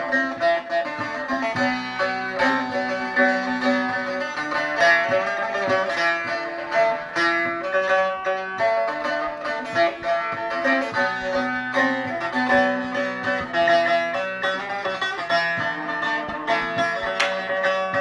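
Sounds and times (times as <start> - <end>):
plucked lute melody: 0.0 - 18.0.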